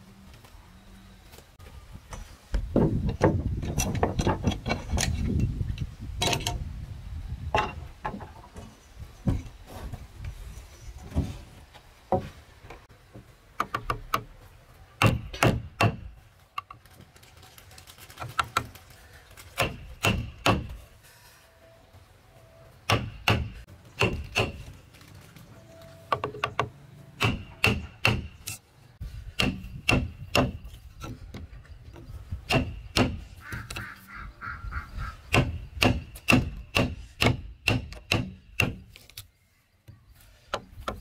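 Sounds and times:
hammer striking wood chisel: 15.0 - 16.1, 19.6 - 20.8, 22.9 - 24.6, 26.1 - 28.6, 29.4 - 30.6, 35.3 - 38.8.

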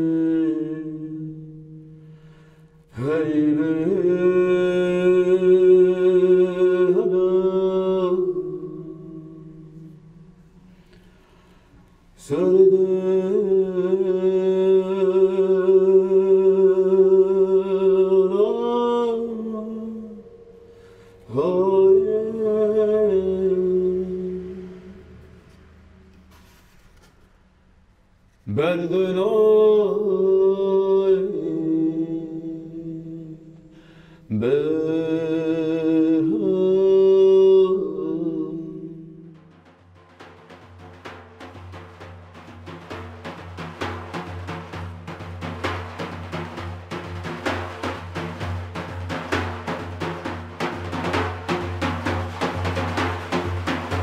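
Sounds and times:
man chanting into drum shell: 12.2 - 20.1, 21.3 - 25.1, 28.5 - 33.3
man droning into a wooden drum: 38.2 - 54.0.

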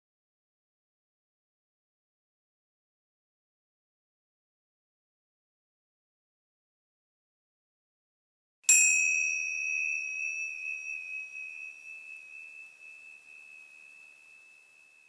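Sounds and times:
struck chime ringing: 8.7 - 15.0.

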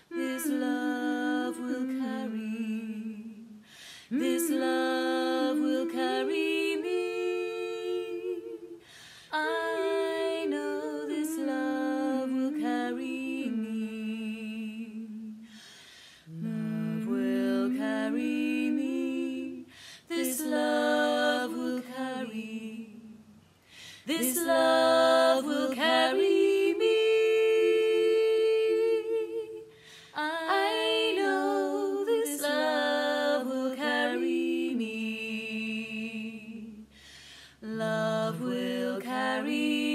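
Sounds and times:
woman singing a cappella harmony: 0.0 - 39.9.

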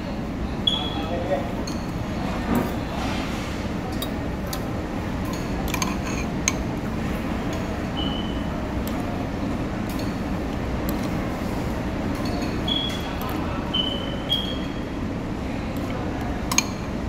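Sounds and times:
low background hum: 0.0 - 17.0
spoon and fork clinking on bowl: 5.2 - 6.6, 12.1 - 12.6, 16.5 - 16.9.

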